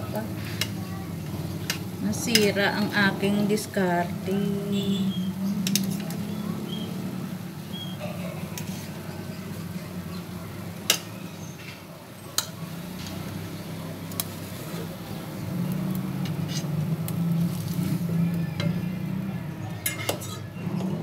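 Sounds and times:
metal fork clicking against frying pan: 12.4 - 12.6.

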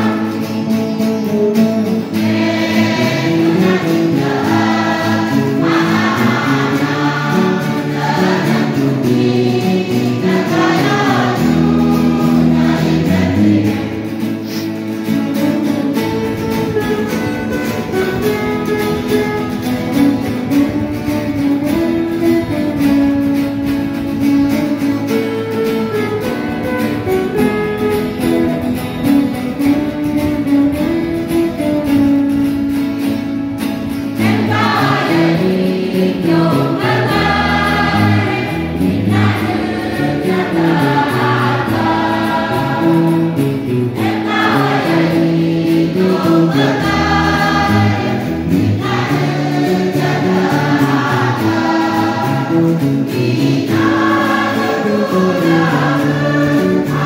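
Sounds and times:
choir singing: 0.0 - 1.0, 1.8 - 14.6, 34.2 - 57.0
guitars playing a hymn tune: 0.0 - 57.0.

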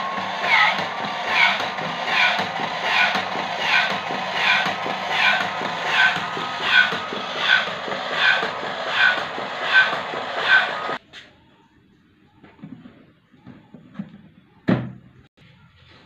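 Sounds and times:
motor hum: 0.0 - 11.0.

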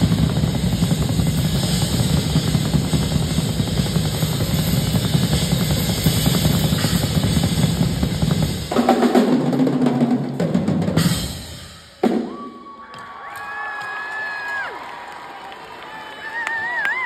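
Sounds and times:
drum kits playing: 0.0 - 12.7.

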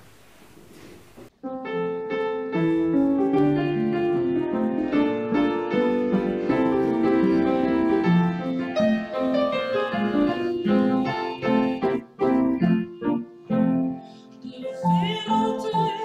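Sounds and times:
upright piano playing: 1.4 - 16.0.

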